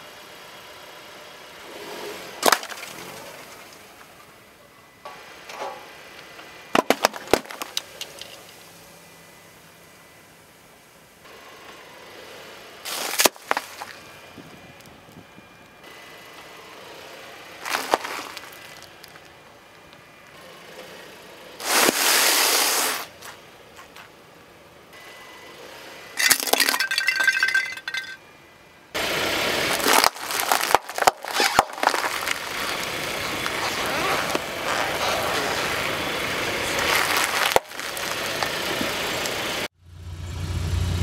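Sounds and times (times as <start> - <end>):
car tyre crushing snack packages: 2.4 - 4.1, 6.7 - 8.7, 12.9 - 14.0, 17.6 - 19.4, 26.2 - 28.1, 29.4 - 39.4.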